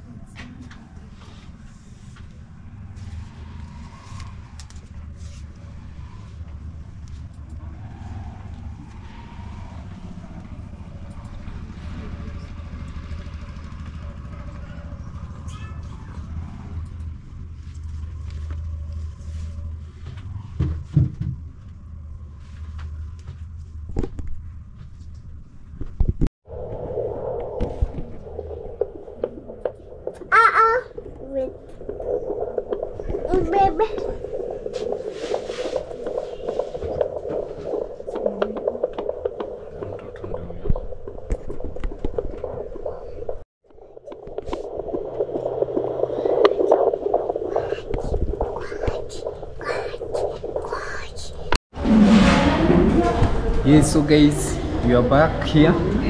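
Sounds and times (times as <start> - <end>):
low steady rumble: 0.0 - 56.0
fetal heartbeat through speaker: 26.0 - 51.5.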